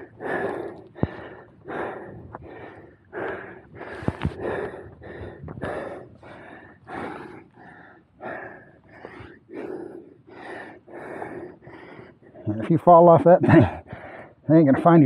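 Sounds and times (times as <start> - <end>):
person breathing hard: 0.0 - 12.5, 13.7 - 14.5.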